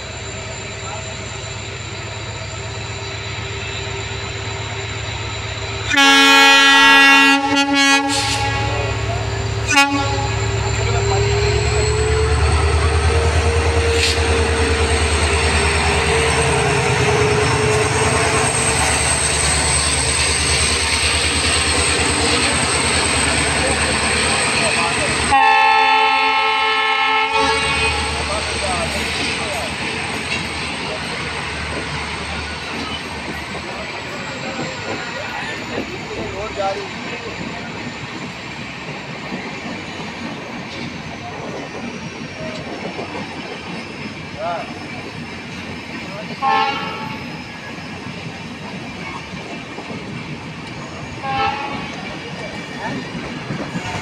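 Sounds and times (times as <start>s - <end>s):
locomotive passing: 0.0s - 54.0s
train wheels on rails: 0.0s - 54.0s.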